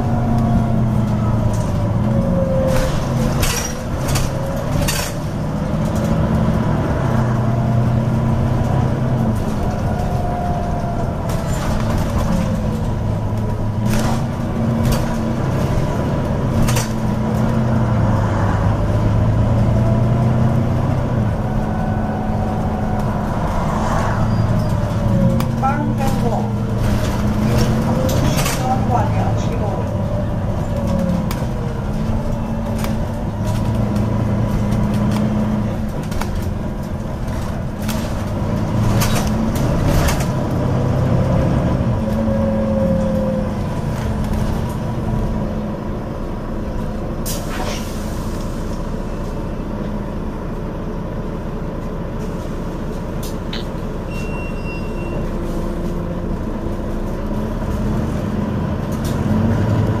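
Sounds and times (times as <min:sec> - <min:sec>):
bus diesel engine running: 0:00.0 - 1:00.0.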